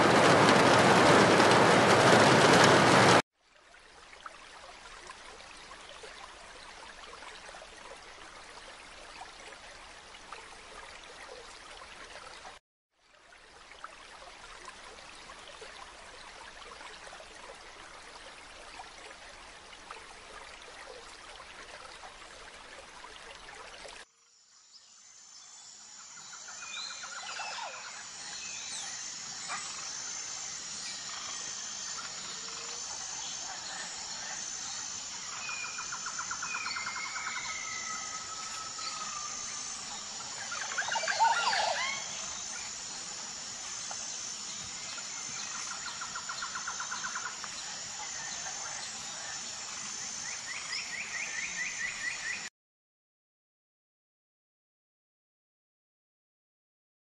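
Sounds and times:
running water: 0:00.0 - 0:24.1, 0:26.1 - 0:52.5
pulsing high-pitched buzz: 0:25.0 - 0:52.4
birds trilling and whistling: 0:26.2 - 0:49.3.

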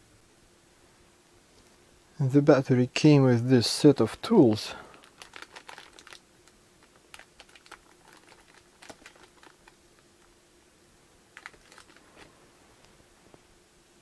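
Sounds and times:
plastic bag crinkling: 0:04.6 - 0:10.3, 0:11.3 - 0:12.4.

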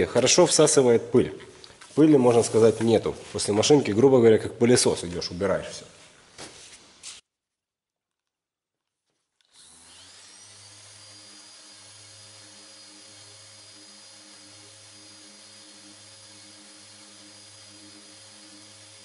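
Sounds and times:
orbital sander whining: 0:09.4 - 0:19.0.

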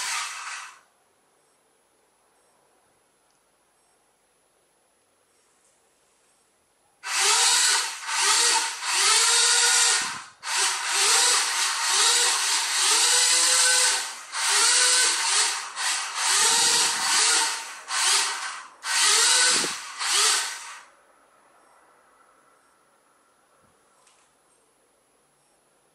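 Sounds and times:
small electric motors whirring: 0:00.0 - 0:00.8, 0:07.0 - 0:20.9.

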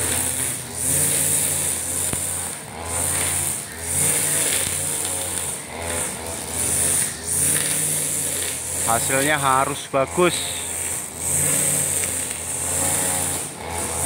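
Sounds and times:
brush cutter engine under load: 0:00.0 - 0:14.0
trimmer line hissing through grass: 0:00.0 - 0:14.0.

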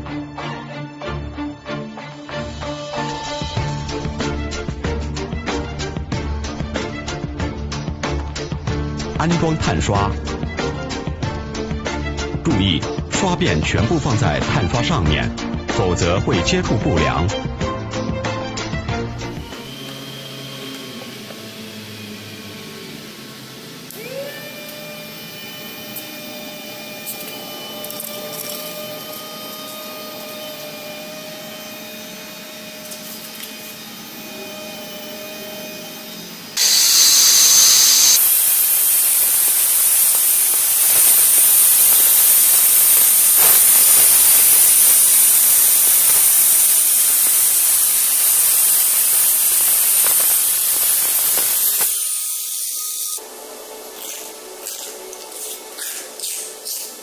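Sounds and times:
electric motor whine: 0:19.0 - 0:57.0
wall chaser grinding concrete: 0:19.1 - 0:57.0.

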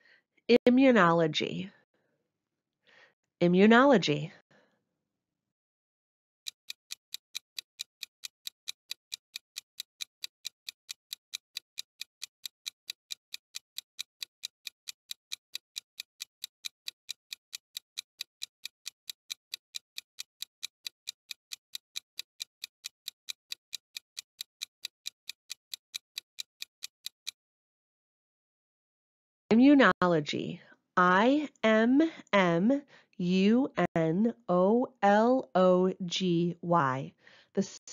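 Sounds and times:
rapid clock ticking: 0:06.4 - 0:27.4.

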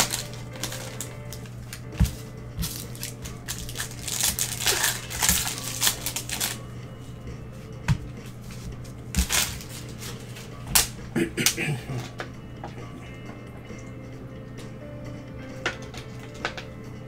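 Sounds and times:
wrappers crinkling and tearing: 0:00.0 - 0:06.6, 0:09.1 - 0:11.0.

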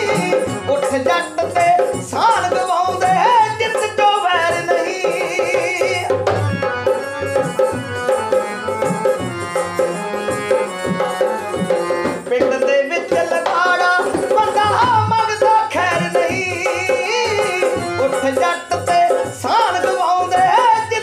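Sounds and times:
man singing: 0:00.0 - 0:07.7, 0:11.8 - 0:21.0.

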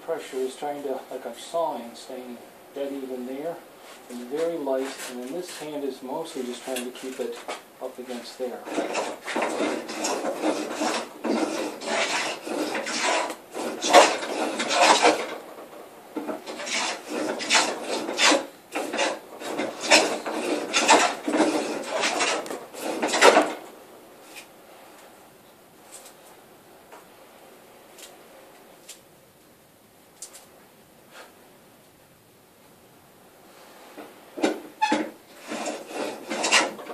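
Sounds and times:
plane shaving wood: 0:04.2 - 0:23.6, 0:34.4 - 0:36.9.

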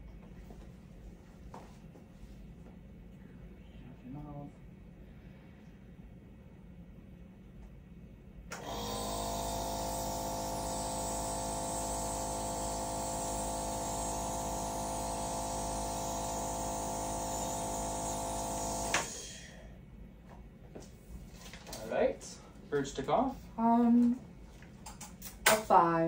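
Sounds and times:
nebulizer humming and hissing: 0:08.5 - 0:19.6.

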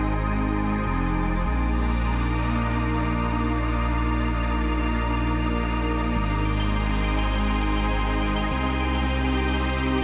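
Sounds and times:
music with slow held chords: 0:00.0 - 0:10.0.

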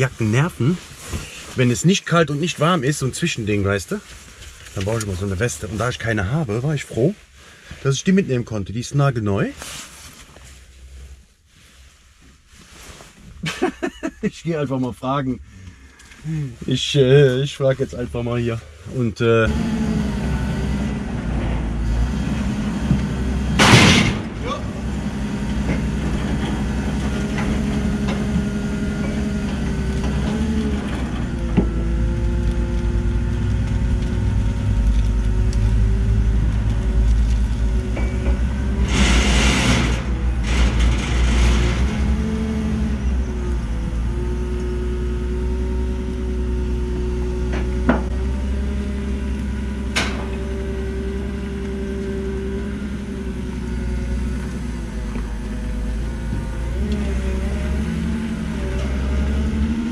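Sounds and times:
engine rumble: 0:00.0 - 0:59.9
forklift engine rising and falling: 0:18.1 - 0:59.9.

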